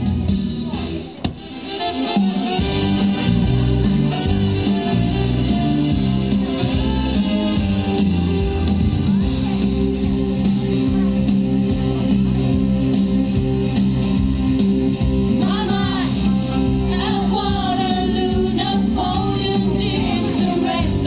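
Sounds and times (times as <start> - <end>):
pop song with guitar: 15.3 - 21.0
women singing long notes: 15.4 - 21.0.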